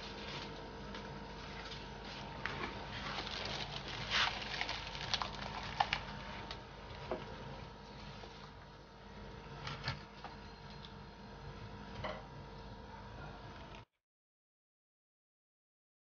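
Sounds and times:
faint steady hum: 0.0s - 13.9s
plastic bag crinkling: 2.9s - 6.6s.

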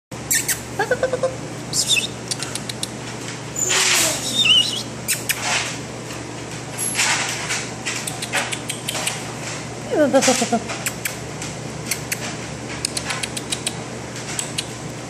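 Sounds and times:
puppy squeaking and whimpering: 0.3s - 2.2s, 3.6s - 5.4s
puppy breathy noises: 2.3s - 3.0s.

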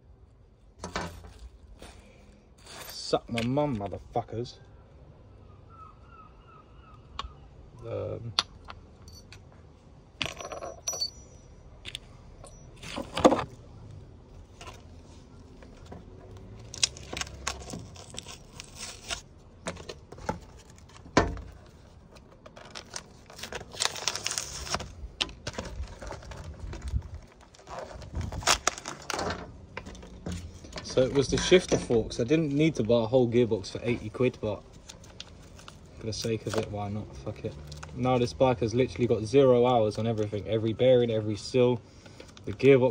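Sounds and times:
metal parts clinking and scraping: 0.8s - 3.8s, 8.4s - 13.6s, 15.6s - 33.0s.

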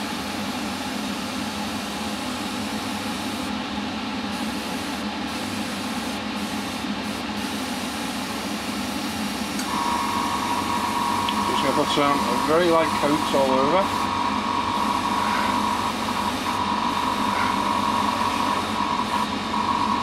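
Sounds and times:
airbrush hissing: 4.4s - 19.3s
extractor fan whooshing: 8.2s - 20.0s.

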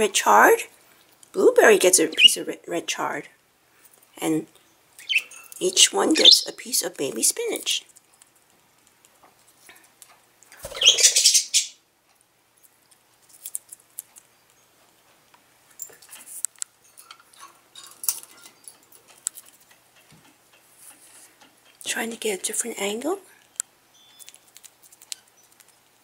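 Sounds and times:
bird beak crunching leaves: 24.2s - 25.9s.

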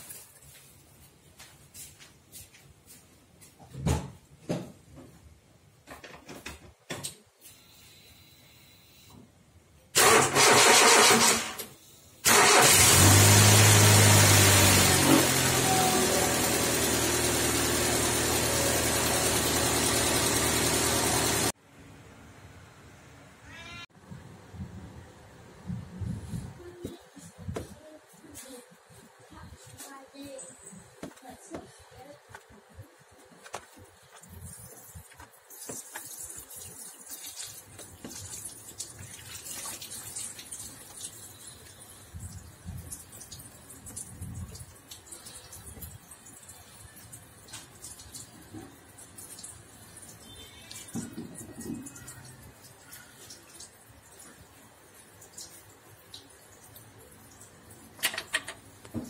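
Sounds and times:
car engine idling: 12.3s - 21.5s.

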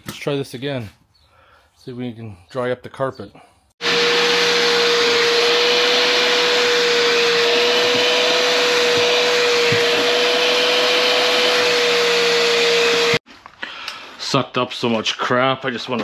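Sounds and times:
carpet cleaner suction rush: 3.8s - 13.2s
motor whine: 3.8s - 13.2s.

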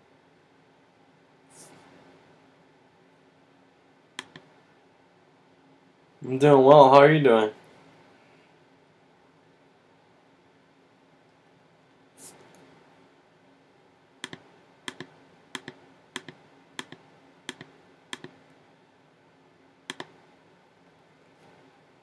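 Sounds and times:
keyboard keys clicking: 14.2s - 18.4s.

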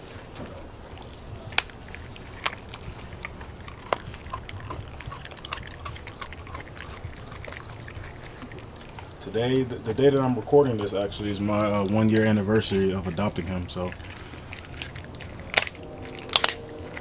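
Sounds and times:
dog chewing and crunching: 0.0s - 17.0s
loud sharp cracks: 15.5s - 16.6s.

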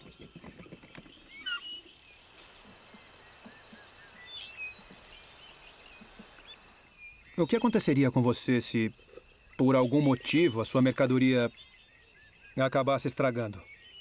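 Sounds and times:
short high bird chirps: 1.3s - 2.3s.

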